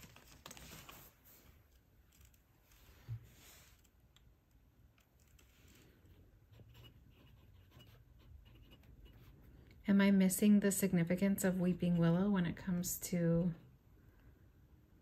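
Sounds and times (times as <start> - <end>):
pen nib scratching on paper: 6.1 - 9.4.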